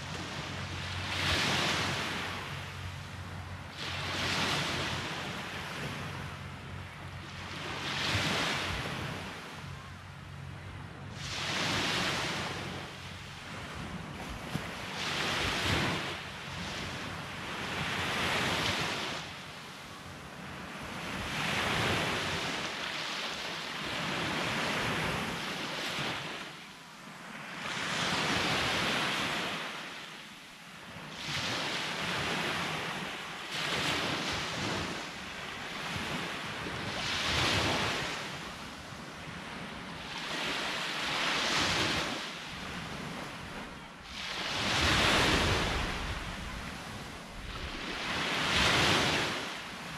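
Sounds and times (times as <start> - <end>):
sea waves breaking on a beach: 0.0 - 49.9.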